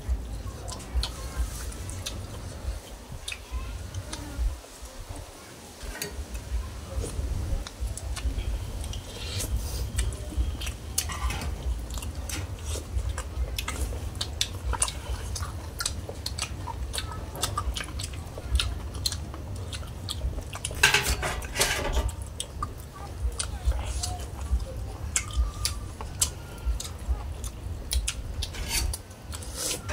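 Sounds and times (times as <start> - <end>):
people chewing and lip-smacking: 0.0 - 29.9
steady low rumble: 6.2 - 29.5.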